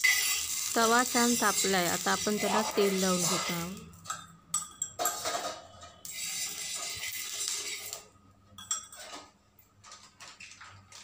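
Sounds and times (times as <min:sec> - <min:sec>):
oil sizzling on pan: 0:00.0 - 0:03.9, 0:06.0 - 0:08.1
metal spoon scraping steel pot: 0:00.0 - 0:04.2, 0:04.9 - 0:09.3.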